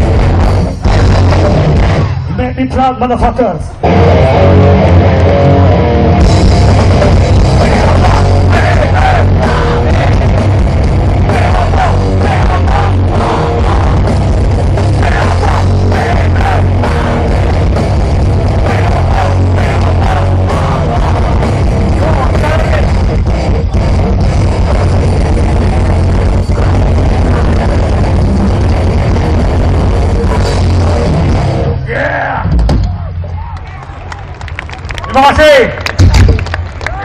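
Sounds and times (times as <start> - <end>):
fast pounding drums: 0.0 - 2.2, 6.2 - 31.6
distorted guitars and bass: 0.0 - 34.0.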